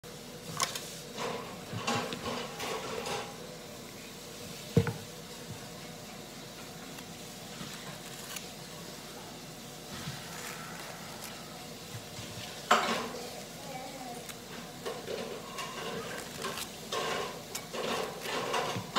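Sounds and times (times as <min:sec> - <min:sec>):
scraping and rustling: 0:09.8 - 0:18.9.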